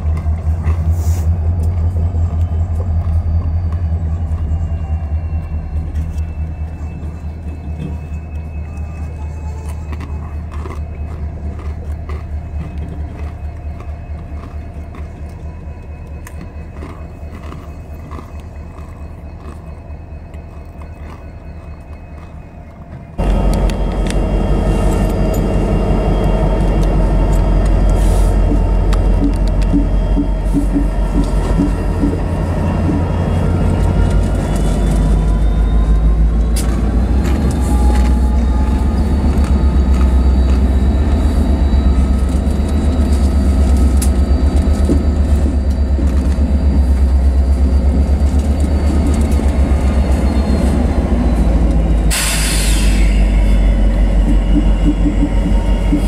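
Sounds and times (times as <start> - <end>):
locomotive engine rumble: 0.0 - 56.0
rising engine whine: 0.0 - 56.0.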